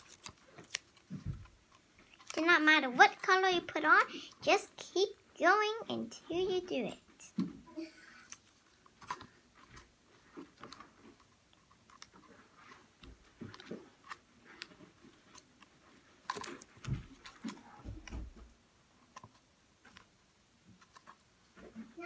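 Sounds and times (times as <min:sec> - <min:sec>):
paper rustling: 0:00.0 - 0:02.5
paper crinkling and clicks: 0:00.0 - 0:02.6.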